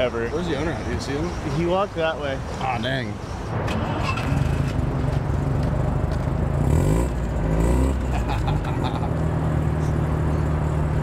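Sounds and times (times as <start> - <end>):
car engine revving: 5.4 - 11.0.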